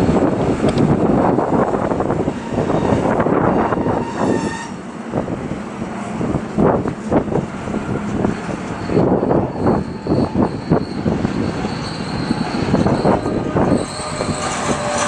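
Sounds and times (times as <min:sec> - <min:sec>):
train wheels rumbling on rails: 0:00.0 - 0:15.0
high-pitched wheel squeal: 0:02.3 - 0:04.8, 0:08.7 - 0:15.0
wheels clacking over track: 0:13.8 - 0:15.0.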